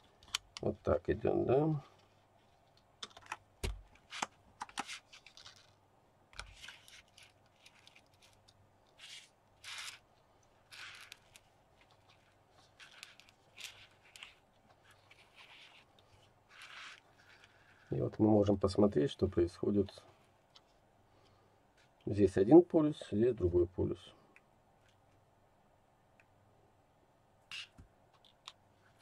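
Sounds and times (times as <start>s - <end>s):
plastic sliding on mat: 10.6s - 18.1s.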